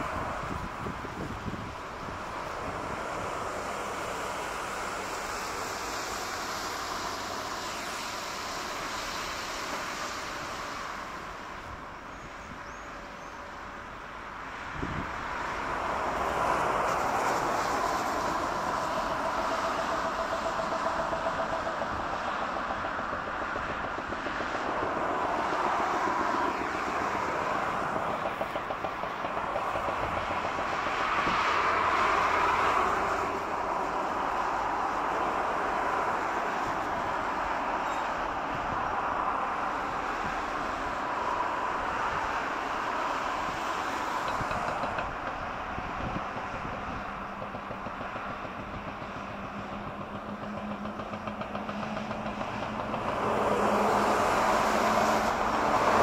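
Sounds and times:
jet engines roaring: 0:14.9 - 0:56.0.

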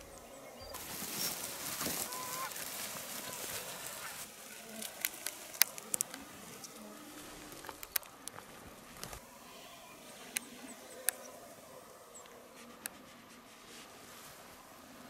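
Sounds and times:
geese honking: 0:00.7 - 0:12.5
sharp clicks: 0:04.8 - 0:06.8.

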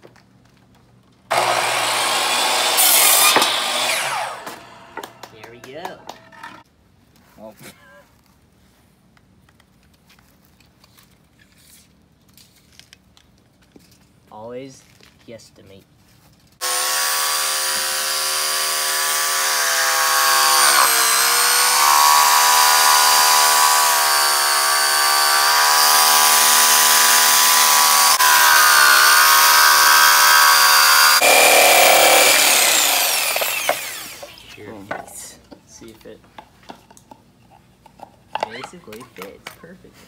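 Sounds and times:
jigsaw cutting wood: 0:01.3 - 0:05.3, 0:16.6 - 0:34.8.

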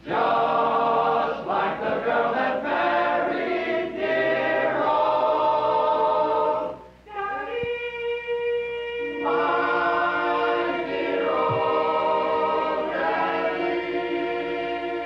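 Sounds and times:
men singing in close harmony: 0:09.1 - 0:15.0.

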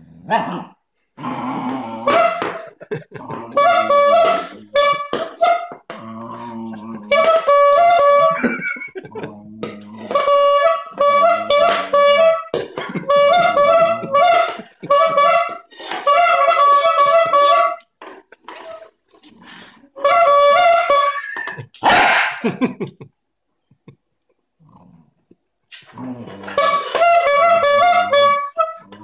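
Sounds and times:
dog growling: 0:00.0 - 0:02.2, 0:03.1 - 0:03.6, 0:06.0 - 0:07.1, 0:09.1 - 0:10.0, 0:24.6 - 0:25.2, 0:25.9 - 0:26.6
squeeze horn honking: 0:02.1 - 0:02.7, 0:03.6 - 0:05.9, 0:07.1 - 0:08.8, 0:10.0 - 0:17.9, 0:20.0 - 0:21.6, 0:26.6 - 0:28.8.

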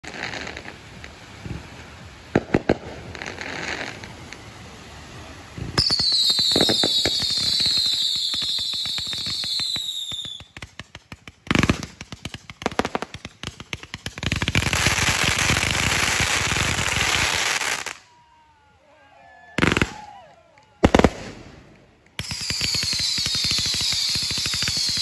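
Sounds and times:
fireworks whistling tones: 0:00.0 - 0:18.0, 0:19.6 - 0:25.0
fireworks crackling: 0:00.0 - 0:18.1, 0:19.6 - 0:25.0
fireworks bang: 0:02.3 - 0:04.4, 0:05.5 - 0:08.5, 0:20.8 - 0:23.1
fireworks pops: 0:02.3 - 0:04.5, 0:05.6 - 0:15.5, 0:19.6 - 0:25.0.

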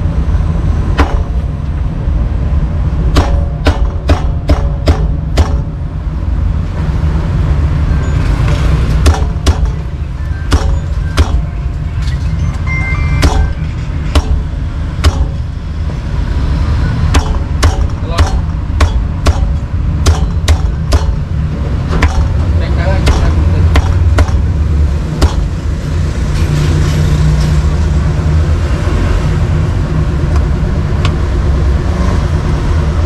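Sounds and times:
road traffic rumble: 0:00.0 - 0:33.0
cleaver chopping on wooden block: 0:03.2 - 0:05.7, 0:09.0 - 0:09.8, 0:10.5 - 0:11.4, 0:14.2 - 0:14.4, 0:15.0 - 0:15.4, 0:17.1 - 0:21.2, 0:21.9 - 0:22.4, 0:23.0 - 0:24.5, 0:25.2 - 0:25.5.

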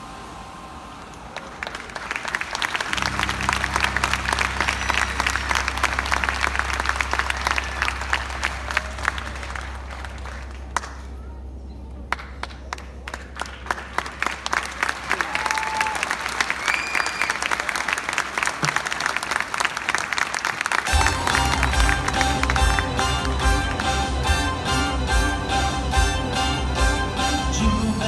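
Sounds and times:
audience applauding: 0:00.9 - 0:11.3, 0:12.0 - 0:27.3
low steady drone: 0:02.9 - 0:15.0, 0:20.9 - 0:28.0.

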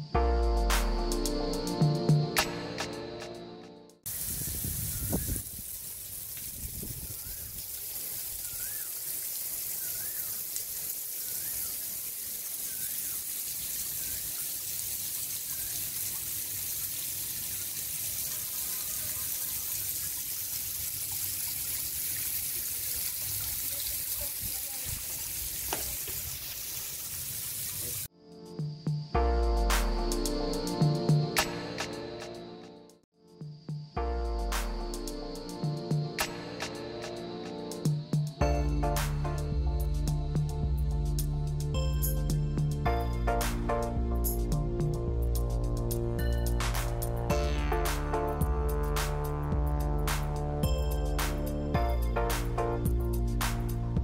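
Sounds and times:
water pouring from shower head: 0:04.1 - 0:28.1.

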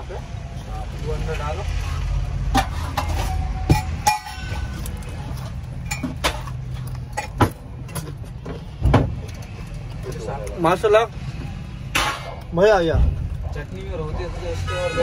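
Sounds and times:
dishes and utensils clinking: 0:02.5 - 0:08.2.

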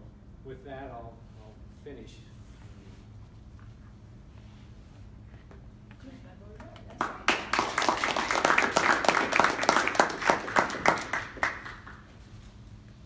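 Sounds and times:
audience applauding: 0:07.0 - 0:12.1.

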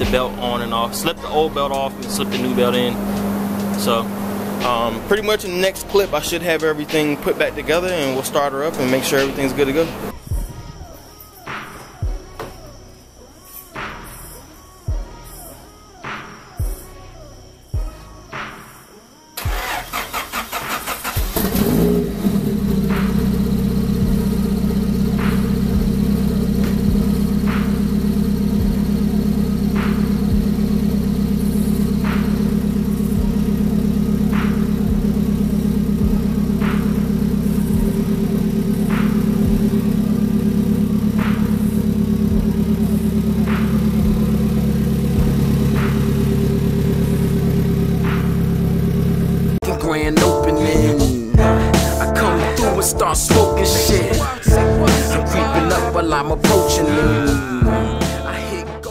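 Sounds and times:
engine starter cranking: 0:00.0 - 0:10.9, 0:19.4 - 0:49.6
car engine idling: 0:00.0 - 0:18.2, 0:19.4 - 0:58.9
faint engine tick: 0:01.7 - 0:04.9.

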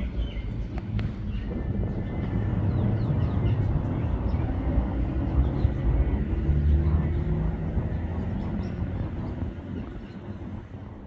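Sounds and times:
low outdoor rumble: 0:00.0 - 0:11.0
small birds chirping: 0:00.0 - 0:11.0.

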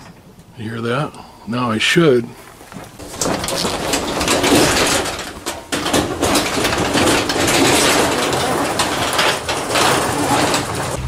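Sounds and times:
garage door rolling and scraping: 0:02.7 - 0:11.0.

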